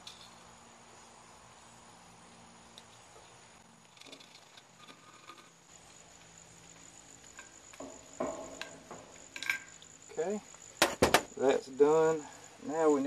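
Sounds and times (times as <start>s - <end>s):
louder knocks: 10.8s - 11.3s.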